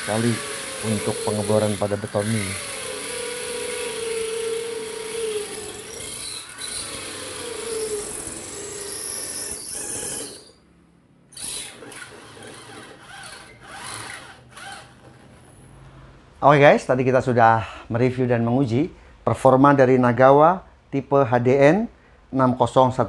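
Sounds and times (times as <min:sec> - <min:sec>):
impact drill whining into concrete: 0:00.0 - 0:10.6, 0:11.3 - 0:15.7.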